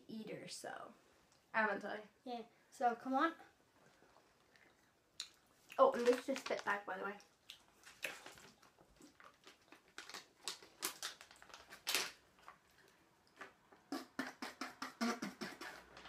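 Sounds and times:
plastic bags crinkling: 5.8s - 6.9s, 7.8s - 13.0s.

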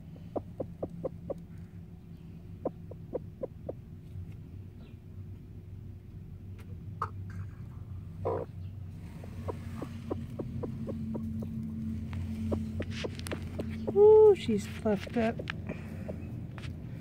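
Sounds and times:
hen clucking: 0.0s - 1.5s, 2.6s - 3.9s, 8.2s - 16.4s
steady low hum: 0.0s - 17.0s.

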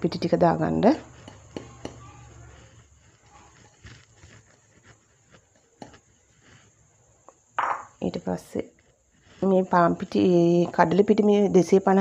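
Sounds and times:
flour pouring rustle: 2.2s - 6.9s, 8.1s - 11.4s
bowl tapping: 7.6s - 8.0s.

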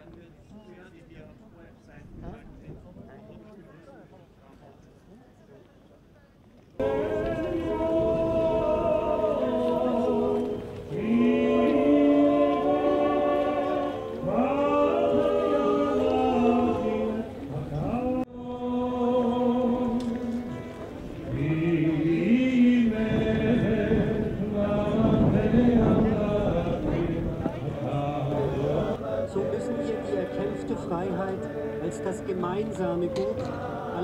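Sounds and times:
choir singing held notes: 6.8s - 34.0s.

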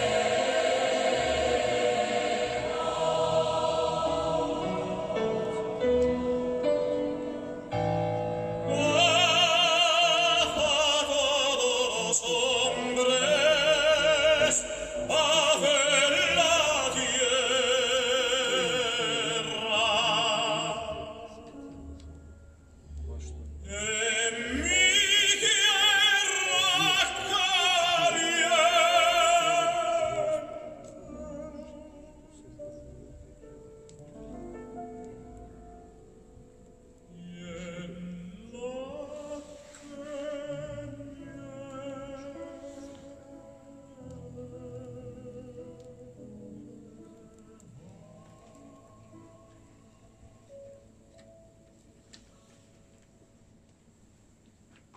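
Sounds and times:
operatic singing with accompaniment: 0.0s - 7.3s, 8.5s - 21.6s, 23.6s - 32.2s.

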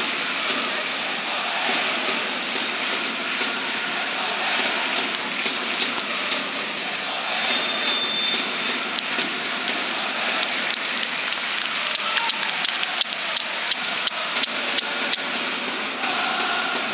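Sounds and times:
rhythmic sharp claps: 0.0s - 16.9s
stadium crowd noise: 0.0s - 16.9s.

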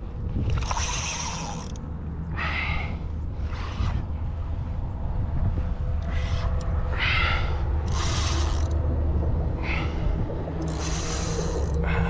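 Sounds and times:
wind rumble on microphone: 0.0s - 12.0s
fishing reel ratcheting: 0.4s - 1.8s, 7.8s - 8.8s, 10.6s - 12.0s.

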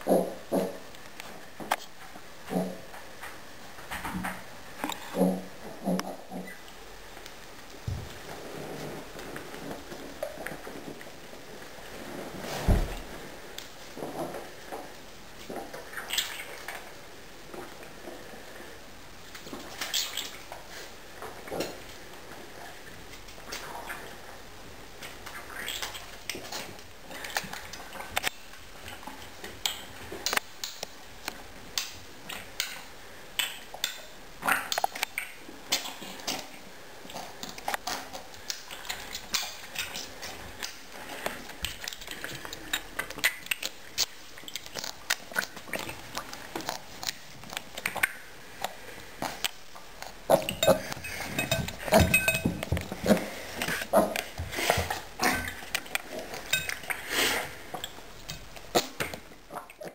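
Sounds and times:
piglet slurping milk: 34.4s - 59.9s
clinks against dish: 51.0s - 52.6s.

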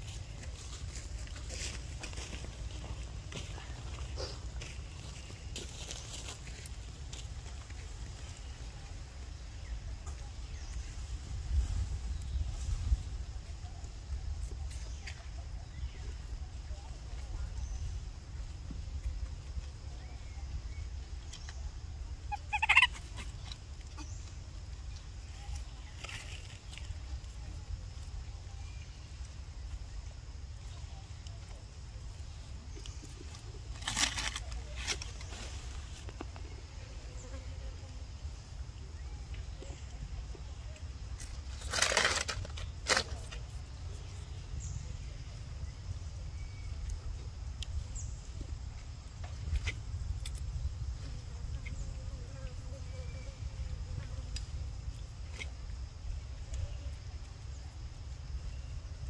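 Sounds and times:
faint rustles: 21.1s - 38.0s
harsh animal call: 22.3s - 23.3s.

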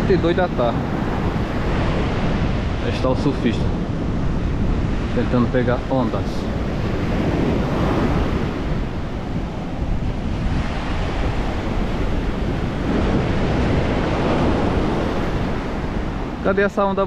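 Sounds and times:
surf breaking ashore: 0.0s - 17.0s
wind buffeting microphone: 0.0s - 17.0s.

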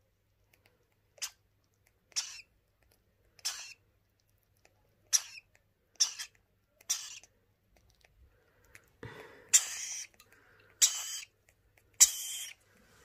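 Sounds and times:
bird chick begging squawks: 2.1s - 2.5s, 3.4s - 3.8s, 6.0s - 7.3s, 9.5s - 10.2s, 10.8s - 11.3s, 12.0s - 12.6s.

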